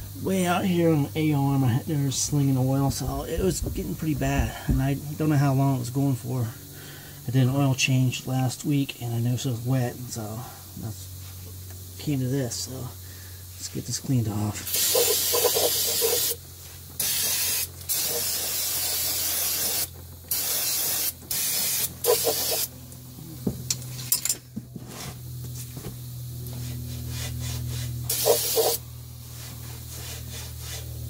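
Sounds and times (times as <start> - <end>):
aerosol can spraying: 14.6 - 22.8, 26.5 - 28.8, 29.4 - 31.0.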